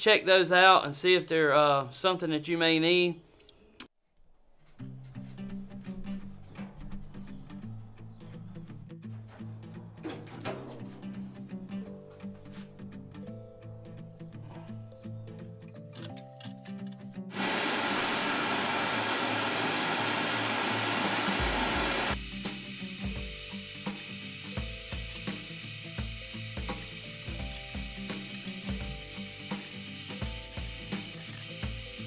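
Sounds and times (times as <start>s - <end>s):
faint background music: 4.6s - 17.3s
metal knocks and clatters: 9.1s - 11.2s
vacuum cleaner sucking debris: 17.3s - 22.9s.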